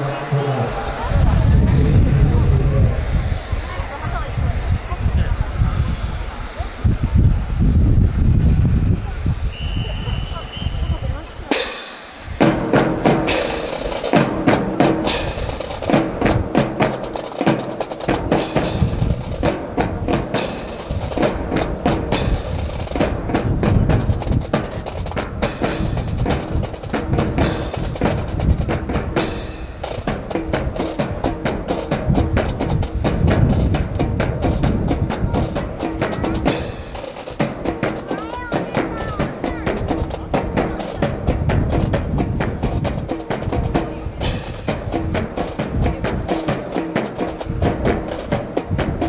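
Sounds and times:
drum corps marching cadence: 10.1 - 49.0.

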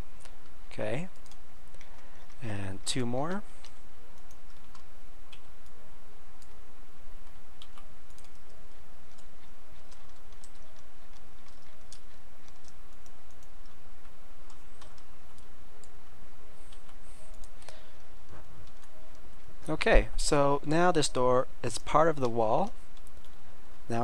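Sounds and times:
computer mouse clicks: 0.2 - 2.4, 3.3 - 5.8, 6.4 - 6.6, 7.2 - 16.0, 16.6 - 19.5.

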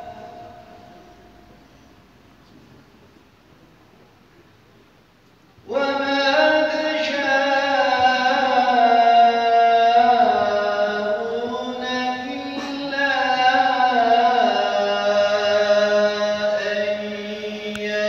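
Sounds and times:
man chanting a hymn: 5.6 - 18.0.

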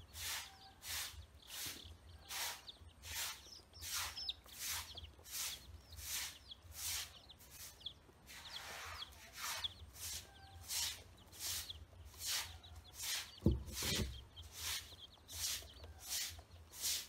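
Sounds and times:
chicks and ducklings peeping: 0.0 - 17.0
dull thump: 13.4 - 14.3.

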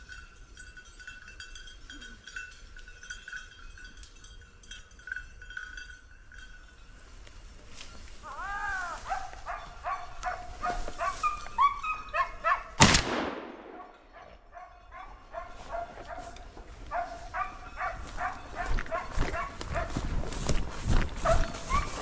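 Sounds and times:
dogs barking and yelping: 8.7 - 12.8, 13.8 - 20.1, 21.2 - 22.0
gunshot: 12.8 - 13.9.

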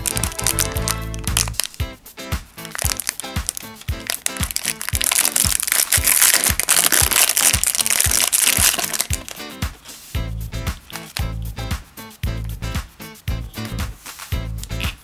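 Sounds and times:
plastic wrapper crinkling: 0.0 - 1.8, 2.6 - 10.0, 10.8 - 11.2
background music with steady beat: 0.0 - 15.0.

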